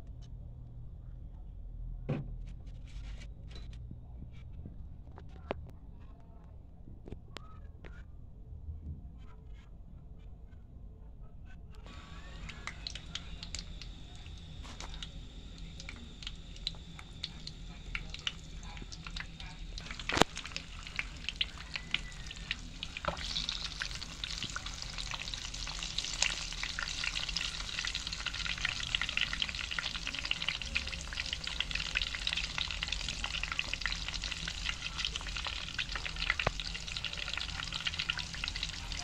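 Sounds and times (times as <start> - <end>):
egg sizzling in a pan: 11.9 - 39.0.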